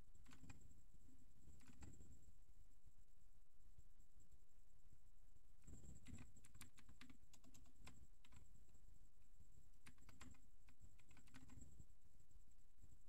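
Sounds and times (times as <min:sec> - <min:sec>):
faint keyboard typing: 0:00.0 - 0:00.8, 0:01.4 - 0:02.3, 0:05.6 - 0:08.8, 0:09.6 - 0:11.9.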